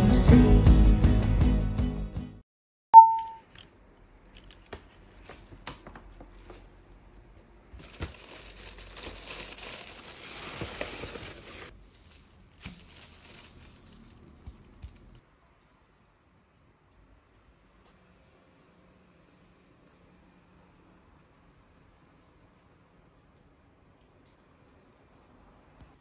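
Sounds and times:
loud single-pitched beep: 3.0s - 3.4s
paper and plastic wrapping crinkling: 4.3s - 15.2s.

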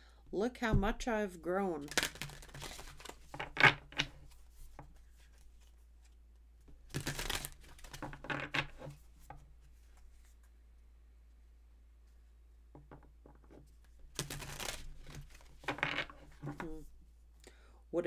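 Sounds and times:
cards shuffling: 1.8s - 10.4s, 13.5s - 16.9s.

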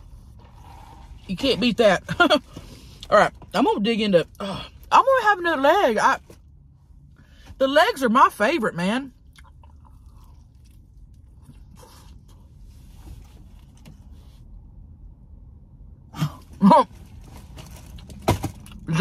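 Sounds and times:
person chewing food: 9.2s - 12.5s.

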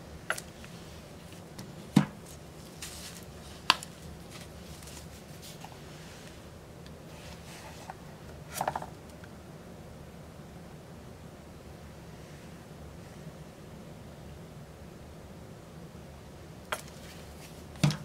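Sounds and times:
plastic bottles knocking on table: 17.8s - 18.0s.

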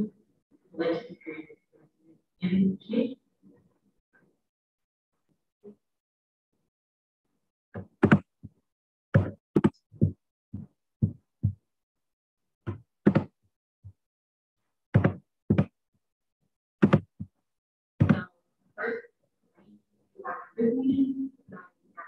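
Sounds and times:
knocks and thumps: 7.7s - 11.6s, 12.6s - 14.0s, 14.9s - 15.8s, 16.8s - 17.3s, 18.0s - 18.3s.

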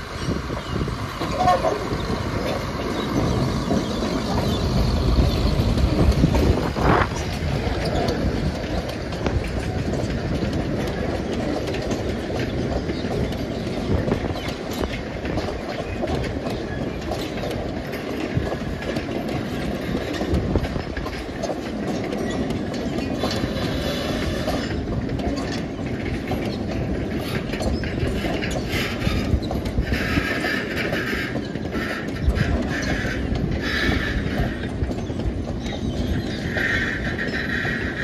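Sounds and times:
train wagon wheels rumbling on rail: 0.0s - 38.0s.

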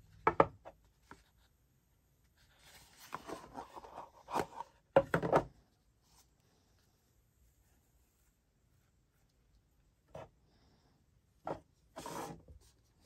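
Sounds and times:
card sliding rustle: 2.4s - 4.8s, 11.9s - 12.8s.

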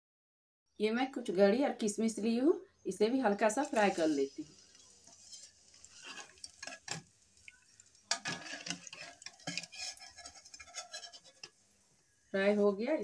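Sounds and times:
faint frying sizzle: 1.3s - 13.0s
metal ladle scraping in a pan: 3.3s - 11.7s.

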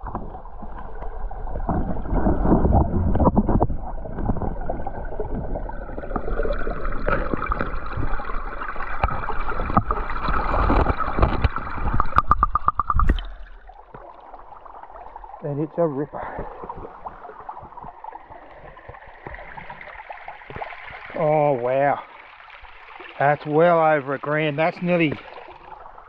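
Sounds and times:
muffled underwater creek rushing: 0.0s - 26.0s
gravel clicks and scrapes: 9.0s - 12.6s.

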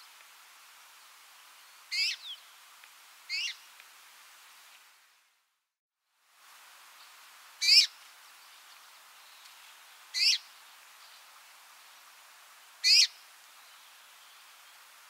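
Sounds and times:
faint steady hiss: 0.0s - 15.0s
finch calling falling notes: 1.9s - 2.4s, 10.2s - 10.4s, 12.8s - 13.2s.

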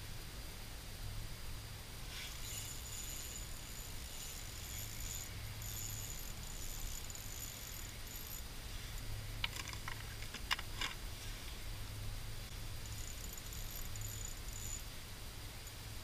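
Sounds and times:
fishing reel clicking and rattling: 2.1s - 11.0s, 12.7s - 14.9s.

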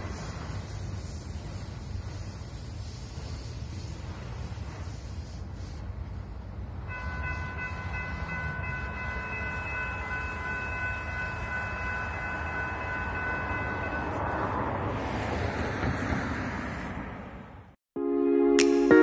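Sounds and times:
low train rumble: 0.0s - 17.8s
distant locomotive air horn: 6.9s - 14.3s.

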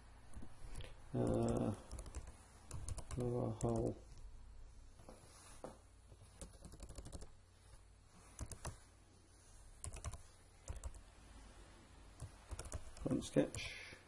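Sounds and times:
keyboard keystrokes: 1.3s - 3.9s, 6.4s - 7.3s, 9.8s - 11.0s, 12.2s - 13.1s.

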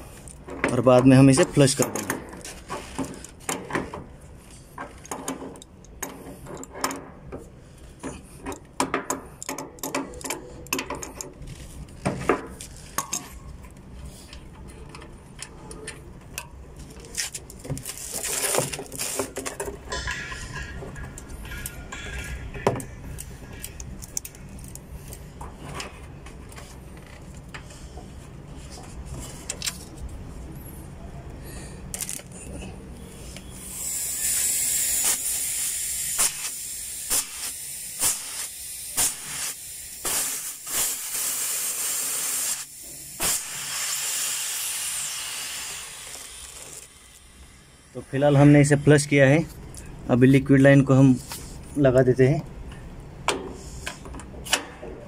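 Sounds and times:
spanner metal clicks: 8.4s - 11.4s
burst of noise: 33.6s - 45.0s.

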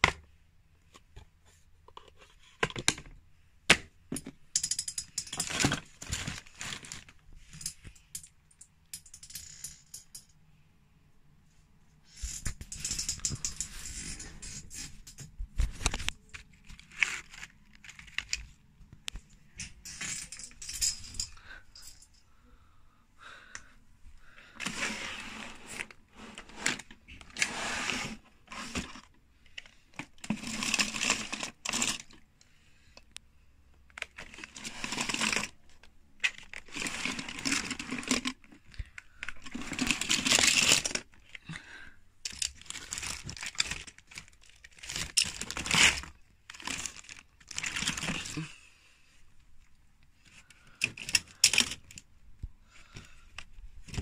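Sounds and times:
rustling and crinkling: 5.3s - 8.2s, 12.0s - 22.3s, 24.2s - 32.3s, 33.7s - 41.6s, 42.2s - 48.6s, 49.3s - 54.0s.

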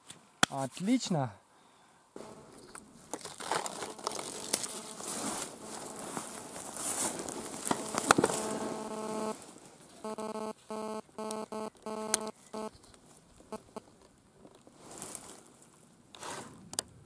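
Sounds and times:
buzzing hum: 2.2s - 12.8s, 13.5s - 13.8s
plastic case rustling: 3.0s - 8.6s.

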